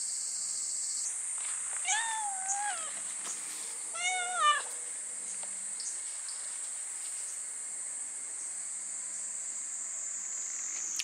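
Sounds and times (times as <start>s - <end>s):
cicadas droning: 0.0s - 11.0s
cat meowing: 1.8s - 3.0s, 3.9s - 4.8s.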